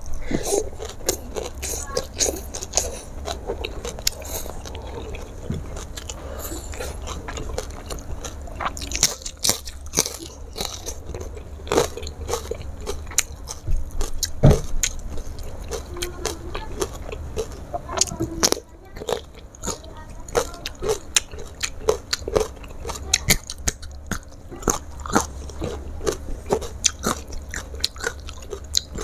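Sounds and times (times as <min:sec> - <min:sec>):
crunchy chewing of fried food: 0:00.0 - 0:29.0.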